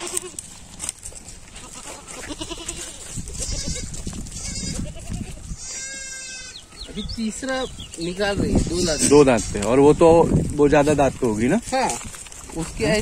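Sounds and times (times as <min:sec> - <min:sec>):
goats bleating: 0:00.0 - 0:00.5, 0:01.5 - 0:06.9, 0:08.4 - 0:09.9.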